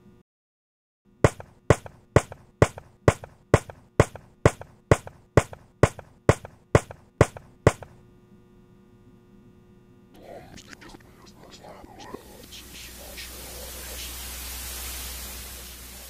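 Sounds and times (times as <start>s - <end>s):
sharp knocks: 1.2s - 8.0s.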